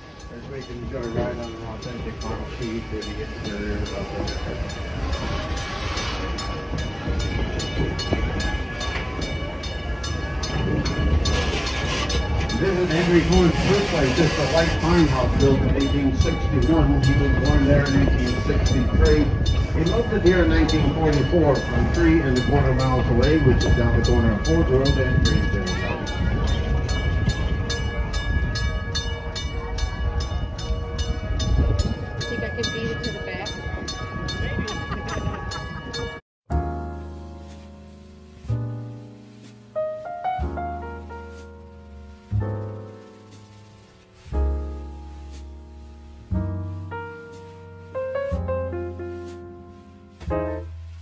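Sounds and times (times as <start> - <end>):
train wheels rumbling on rail: 0.0 - 36.2.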